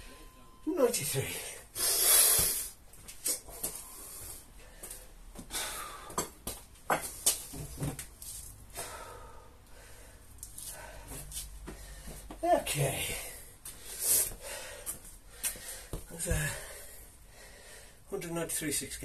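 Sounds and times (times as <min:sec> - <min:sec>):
man breathing hard and gasping: 0:01.6 - 0:02.8, 0:03.4 - 0:06.4, 0:08.7 - 0:12.3, 0:13.0 - 0:18.1.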